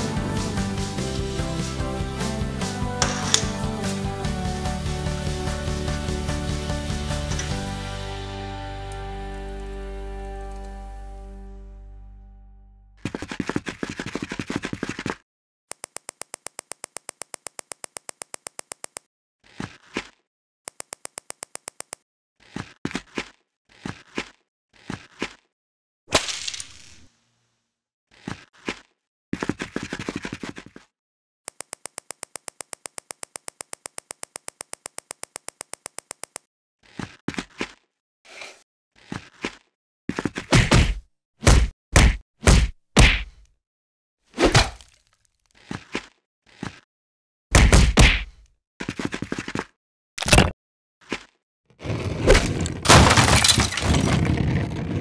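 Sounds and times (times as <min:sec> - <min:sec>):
rapid clicking sound effect: 0:15.7 - 0:19.1, 0:20.7 - 0:22.0, 0:31.5 - 0:36.5.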